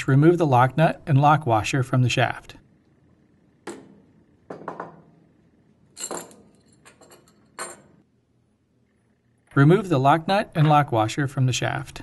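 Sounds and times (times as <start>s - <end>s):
tool set down on bench: 3.6s - 5.1s.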